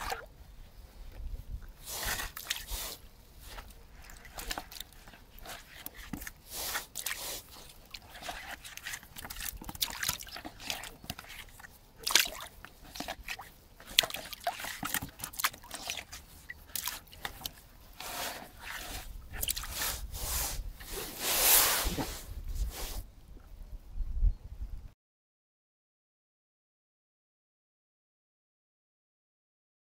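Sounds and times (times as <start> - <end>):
fish sloshing into bucket: 0.0 - 0.3, 1.8 - 20.1
small water splashes and drips: 0.0 - 0.3, 1.6 - 19.8.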